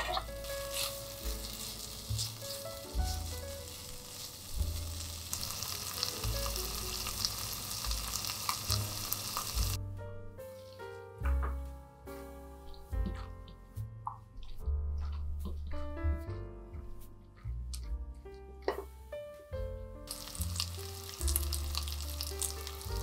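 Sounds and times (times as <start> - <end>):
food sizzling in a pan: 0.0 - 9.8, 20.1 - 23.0.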